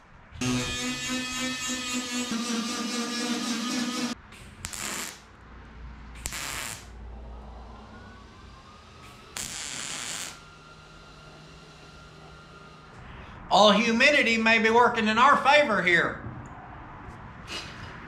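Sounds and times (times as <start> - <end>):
tack welding: 0.4 - 5.4, 6.2 - 7.0, 8.2 - 13.0.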